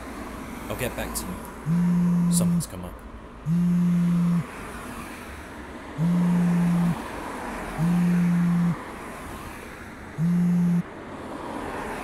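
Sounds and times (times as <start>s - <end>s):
phone vibrating: 1.6s - 2.7s, 3.5s - 4.5s, 6.0s - 7.0s, 7.8s - 8.8s, 10.2s - 10.9s.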